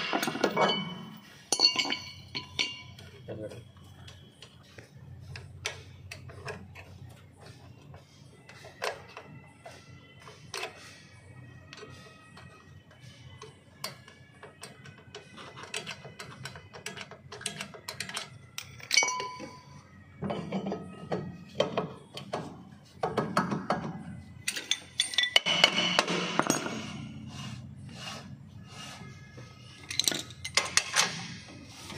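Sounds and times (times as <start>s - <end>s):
ringing metal clink: 0.0s - 3.2s, 17.9s - 21.8s, 23.2s - 27.1s, 29.8s - 31.4s.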